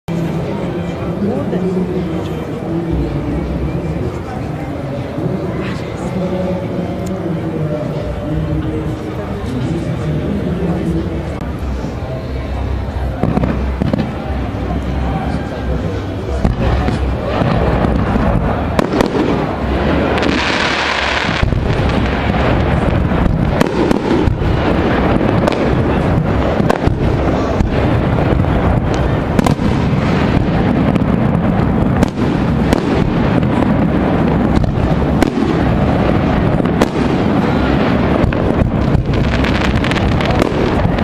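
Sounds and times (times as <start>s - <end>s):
steady rumble: 21.3s - 41.0s.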